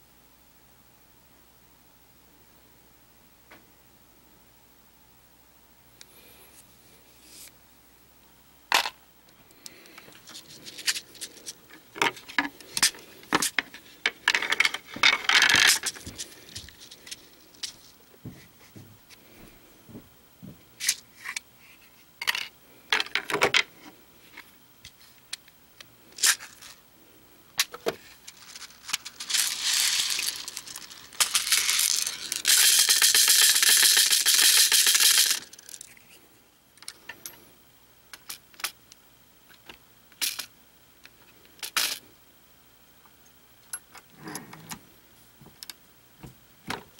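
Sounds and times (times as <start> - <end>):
primers rattling on plastic tray: 10.6 - 16.2, 27.7 - 35.9.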